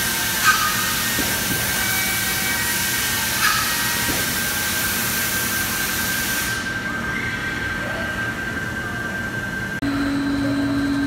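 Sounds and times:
high drill whine: 0.0 - 6.8
loud steady hiss: 0.0 - 6.9.

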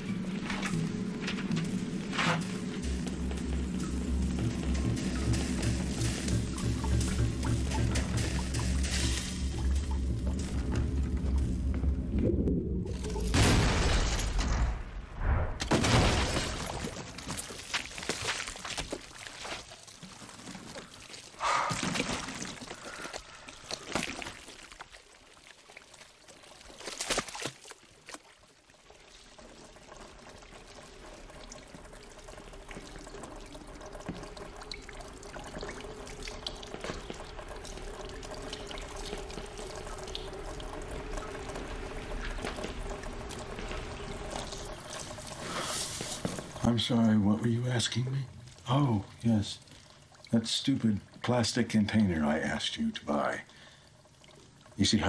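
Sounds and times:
low drone: 0.0 - 13.4
thick liquid pouring and dripping: 16.6 - 52.7
wet splats: 26.6 - 28.3.

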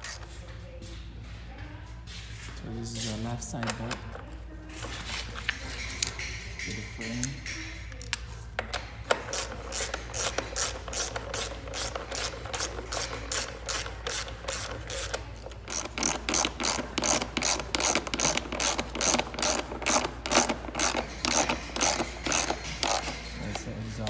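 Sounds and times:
socket ratchet clicking: 9.1 - 23.6.

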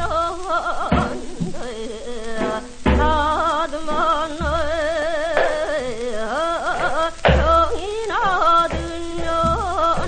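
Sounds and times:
person singing folk melody: 0.0 - 10.0
low drum beats: 2.4 - 6.0, 6.7 - 10.0.

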